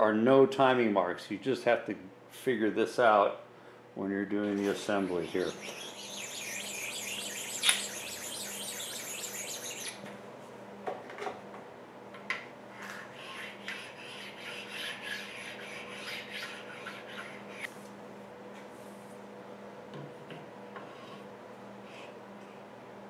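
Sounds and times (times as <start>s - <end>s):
stone rasping on metal table: 5.1s - 10.0s, 13.1s - 17.7s.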